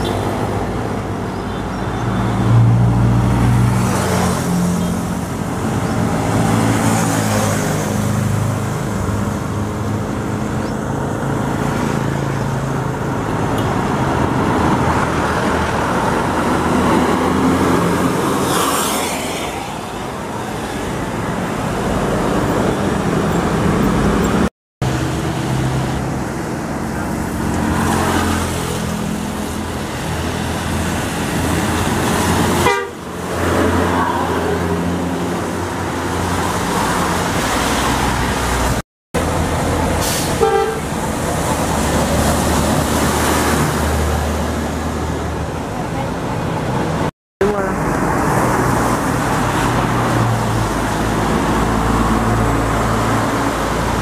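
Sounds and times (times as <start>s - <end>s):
traffic passing: 0.0s - 54.0s
bus horns tooting: 32.6s - 33.2s, 40.0s - 41.0s.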